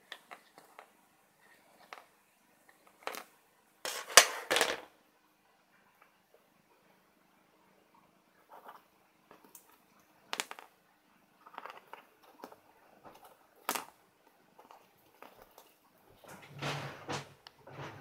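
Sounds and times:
light clicks and scratches: 0.0 - 3.3, 8.4 - 10.8, 11.4 - 18.0.

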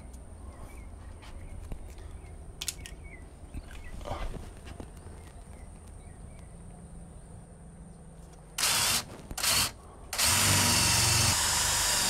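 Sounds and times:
cordless drill boring into wood: 8.6 - 12.0.

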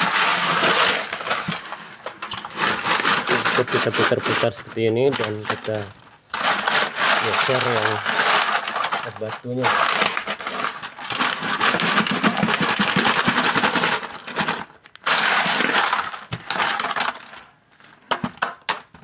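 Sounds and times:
ice grinding against metal: 0.0 - 17.5.

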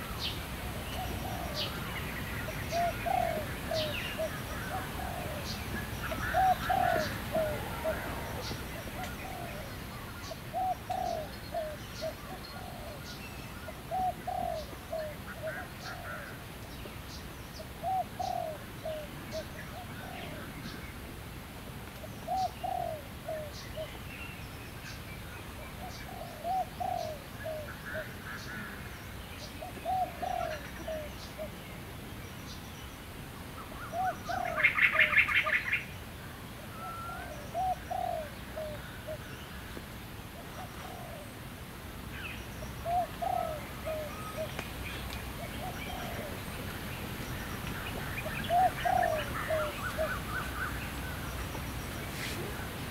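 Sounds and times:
dove cooing: 0.0 - 16.4, 17.7 - 20.8, 22.2 - 24.0, 25.6 - 28.8, 29.6 - 31.6, 33.8 - 35.8, 36.7 - 39.7, 40.4 - 41.4, 42.8 - 44.6, 45.3 - 46.9, 47.9 - 51.3.

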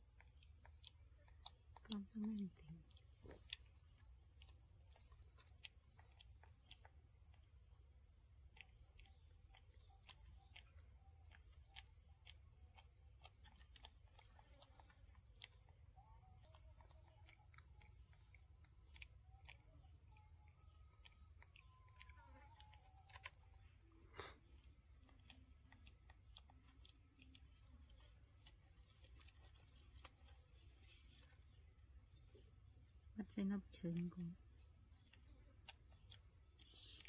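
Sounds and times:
high-pitched insect drone: 13.4 - 33.0.

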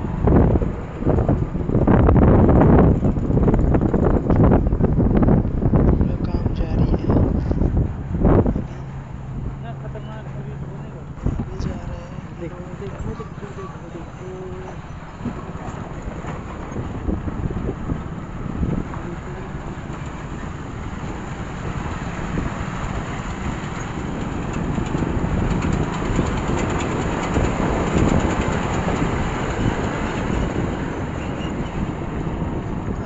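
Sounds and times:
lorry engine and tyres passing: 0.0 - 33.0
rumble of rough road travel: 0.0 - 33.0
wind on microphone: 0.0 - 33.0.

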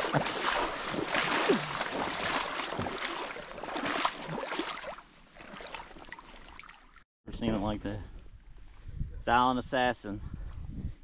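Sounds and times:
river water splashing around legs: 0.0 - 7.0.

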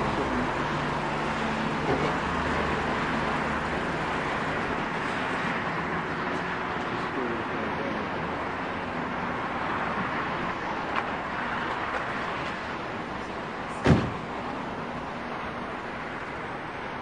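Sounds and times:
loud thump: 13.8 - 14.3.

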